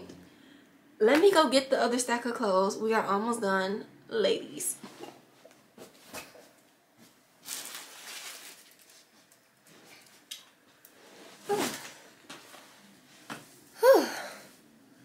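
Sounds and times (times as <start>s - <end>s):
soft rustling and handling: 4.8s - 13.7s.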